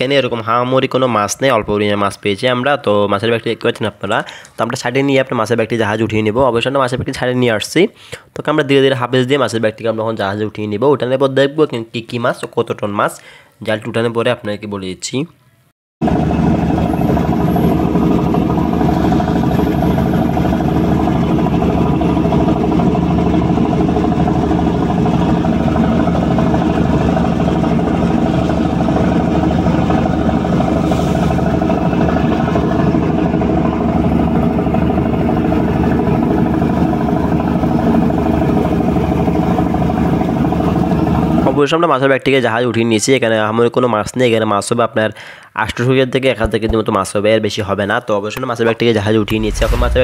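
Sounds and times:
boat engine running: 16.0s - 41.5s, 49.2s - 50.0s.

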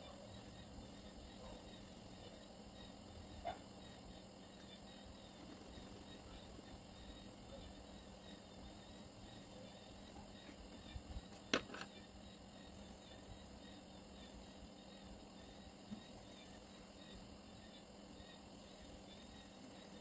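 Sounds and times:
faint high chirping: 0.0s - 20.0s
faint hum: 0.0s - 20.0s
pencil set down click: 11.4s - 11.9s.

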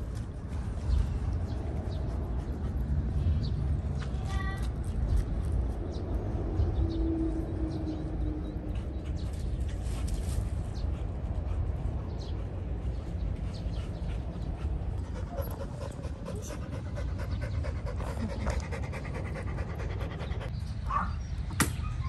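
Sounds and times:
wind rumble on microphone: 0.0s - 20.6s
dog panting: 10.8s - 20.6s.

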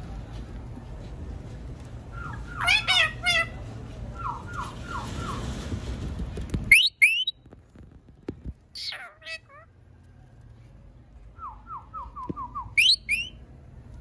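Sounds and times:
low steady background noise: 0.0s - 14.0s
parakeet squawking: 2.2s - 3.6s, 6.7s - 7.3s, 8.8s - 9.7s, 12.8s - 13.4s.

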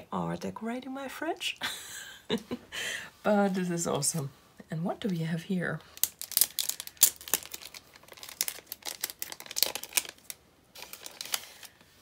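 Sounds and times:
plastic packaging crinkling: 5.8s - 12.0s.

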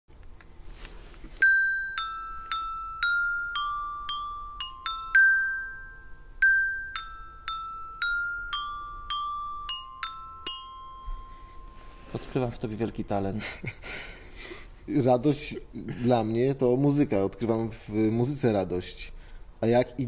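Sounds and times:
slow chiming melody: 1.4s - 13.0s.

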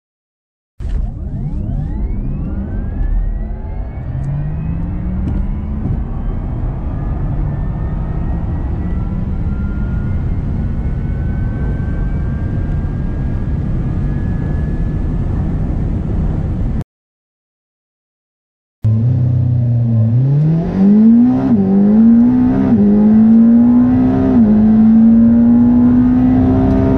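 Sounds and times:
road and wind rumble: 0.8s - 16.8s, 18.9s - 26.9s.

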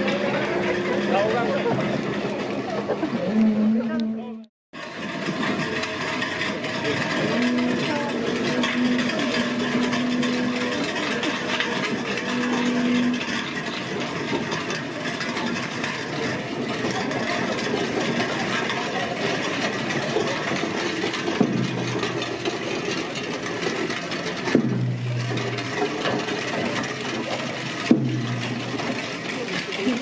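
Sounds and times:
wooden wheels rattling on pavement: 0.0s - 3.4s, 4.8s - 30.0s
low hum: 6.4s - 14.1s, 21.4s - 29.5s.

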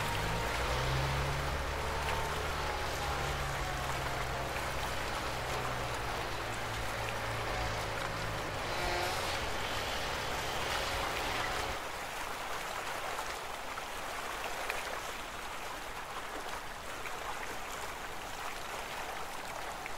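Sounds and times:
low mechanical rumble: 0.0s - 11.8s
water streaming off hull: 0.0s - 19.9s.

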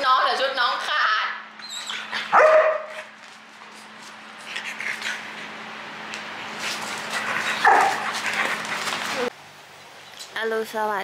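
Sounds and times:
dog yipping: 1.6s - 3.1s, 7.4s - 8.4s
dog barking: 2.2s - 3.1s, 7.6s - 8.2s.

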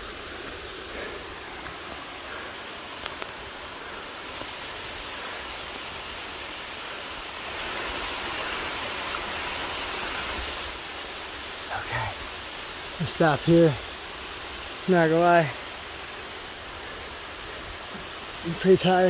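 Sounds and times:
waterfall rushing over rocks: 0.0s - 19.0s
faint clicks: 2.9s - 3.8s.

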